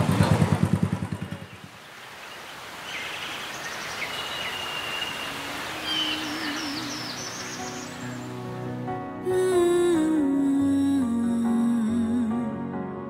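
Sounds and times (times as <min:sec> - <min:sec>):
motorcycle engine running: 0:00.0 - 0:01.8
birds chirping: 0:01.0 - 0:08.6.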